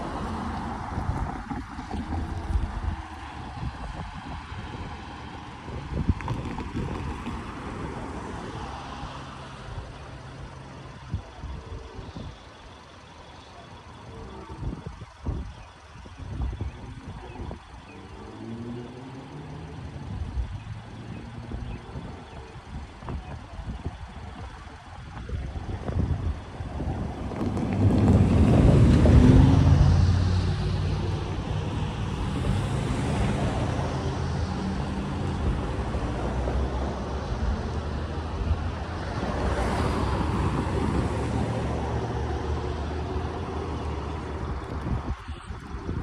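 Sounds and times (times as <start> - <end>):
diesel locomotive engine: 0.0 - 46.0
train rolling past rumble: 25.7 - 36.8.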